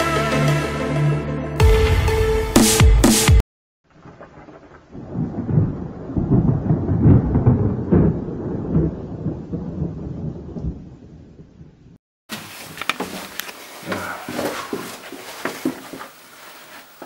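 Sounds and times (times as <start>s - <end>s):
thunder rolling: 4.0s - 12.0s.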